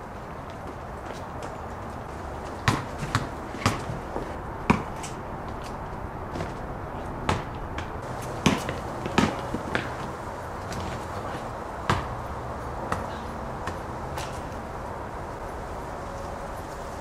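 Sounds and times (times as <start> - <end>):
basketball bouncing on concrete: 2.1 - 5.7, 6.3 - 6.6, 7.2 - 14.5.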